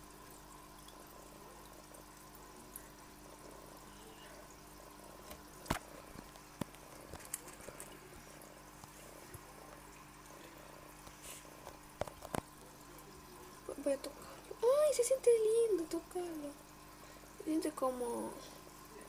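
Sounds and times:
aquarium filter trickling water: 0.0 - 19.0
light clicks and taps: 5.3 - 8.0.

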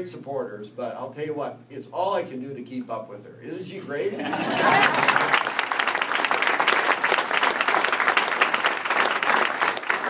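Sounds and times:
crowd applauding: 4.4 - 10.0.

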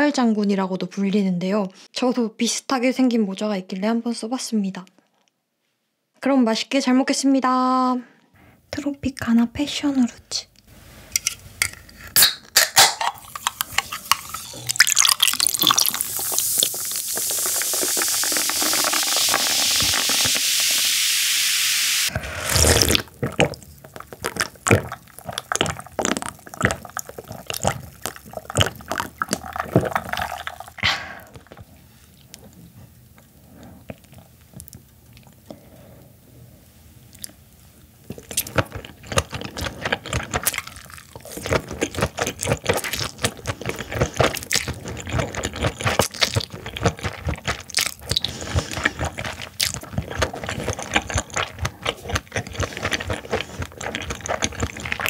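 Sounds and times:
soda can snapped open: 11.2 - 13.7
sipping and gulping: 12.0 - 21.0, 22.1 - 31.7, 38.0 - 55.0
chewing: 13.1 - 20.8, 22.5 - 32.6, 33.2 - 35.6, 38.0 - 55.0
soda fizzing into a glass: 13.2 - 23.1, 29.0 - 30.8.

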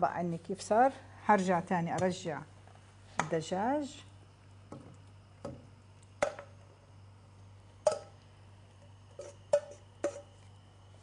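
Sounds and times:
bowl and utensil knocking on pan: 9.2 - 10.3.

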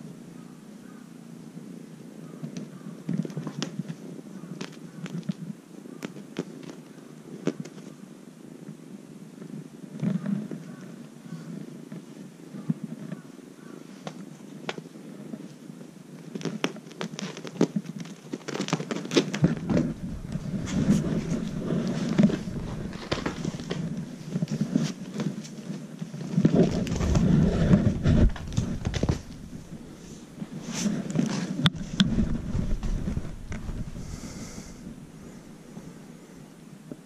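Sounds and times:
rustling and scratching on mats: 2.5 - 8.0, 9.4 - 36.2
camera brushing against clothing: 19.0 - 35.9.

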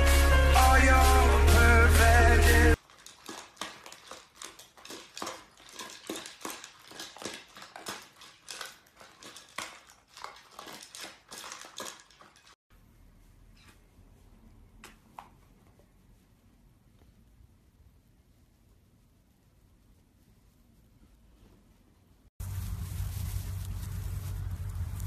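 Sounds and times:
loud music: 0.0 - 2.8
dogs eating from bowls: 2.8 - 12.6.

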